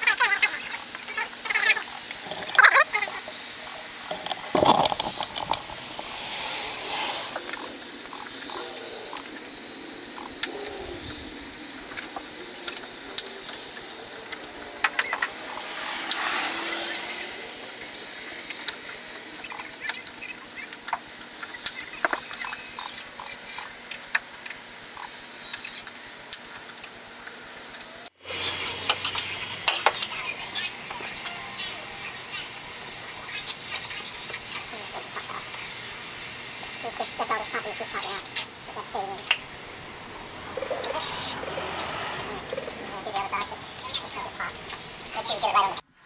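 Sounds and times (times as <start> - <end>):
outdoor background hiss: 0.0 - 45.9
brief rushing sound: 4.2 - 8.6.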